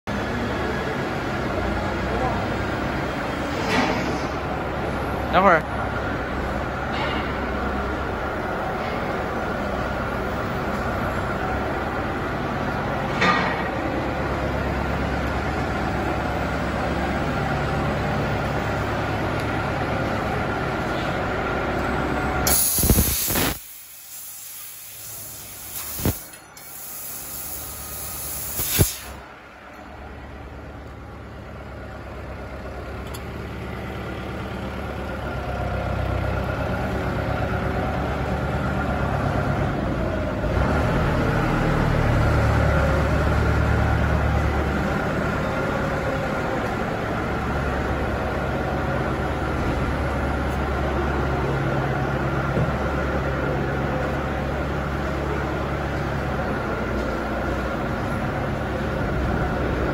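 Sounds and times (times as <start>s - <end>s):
loud hiss burst: 22.4s - 29.2s.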